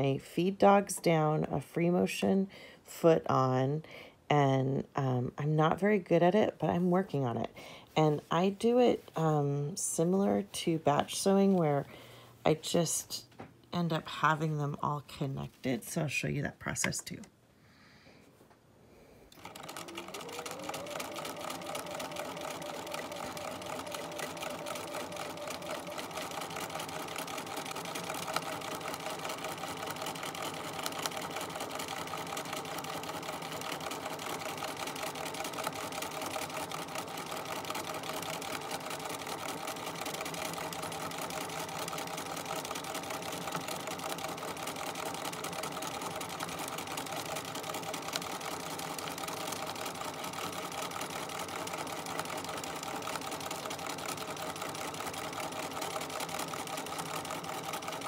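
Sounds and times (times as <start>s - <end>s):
sewing machine stitching: 19.3s - 58.0s.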